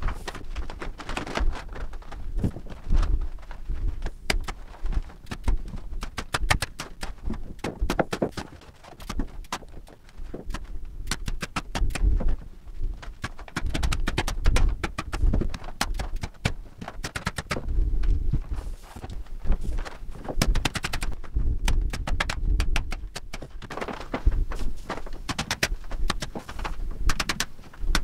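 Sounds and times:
rapid sharp clicks and rattles: 4.0 - 12.4, 13.0 - 17.7, 19.8 - 28.0.

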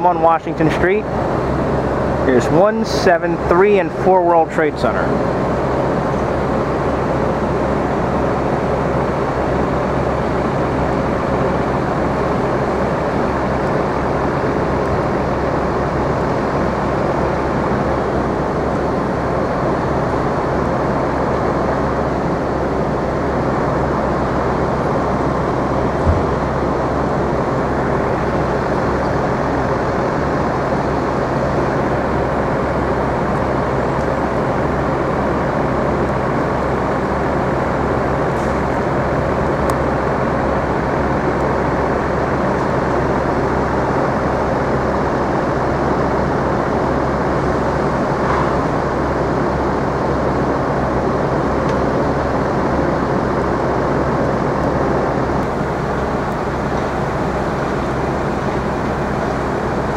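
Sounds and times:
traffic roar: 0.0 - 59.9
low thump: 26.0 - 26.4.

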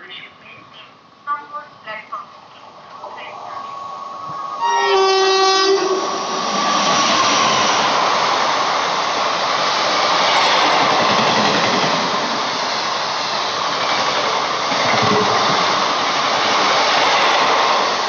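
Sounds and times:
train rushing past: 1.8 - 18.0
train horn: 4.6 - 6.2.

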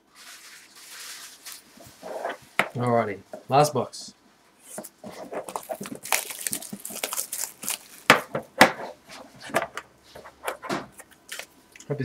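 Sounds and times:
plastic wrap crackling: 0.0 - 2.9, 4.7 - 8.6, 11.0 - 11.8.

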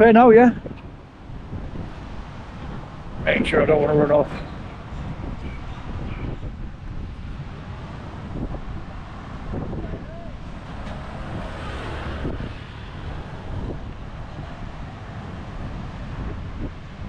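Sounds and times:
traffic passing: 0.0 - 17.0
wind buffeting microphone: 0.0 - 17.0
faint voices: 9.8 - 10.4.

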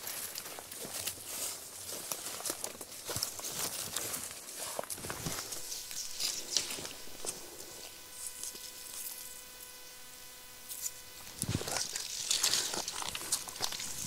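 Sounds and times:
faint steady hum: 0.0 - 14.0
footsteps on dry leaves: 0.0 - 14.0.

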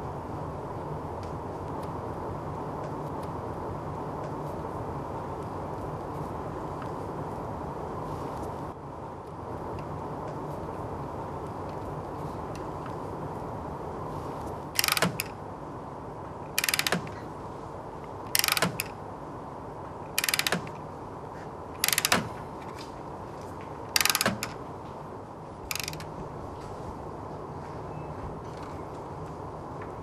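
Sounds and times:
faint background hum: 0.0 - 30.0
hand ratchet clicking: 14.8 - 15.3, 16.6 - 17.2, 18.3 - 18.9, 20.2 - 20.8, 21.8 - 22.8, 23.9 - 24.6, 25.7 - 26.1.

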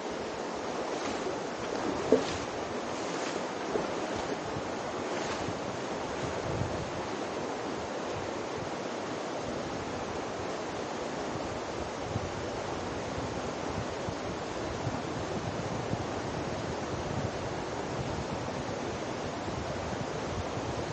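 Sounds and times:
river water rushing: 0.0 - 13.7.

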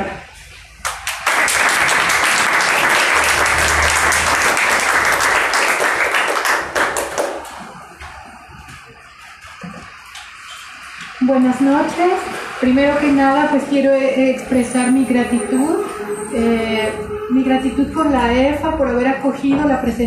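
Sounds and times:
audience applauding: 0.8 - 8.9.

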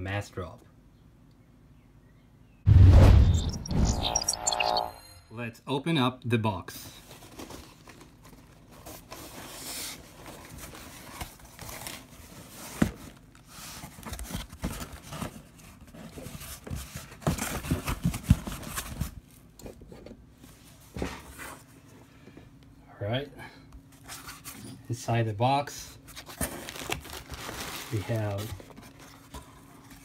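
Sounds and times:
packing tape tearing: 26.1 - 29.1.

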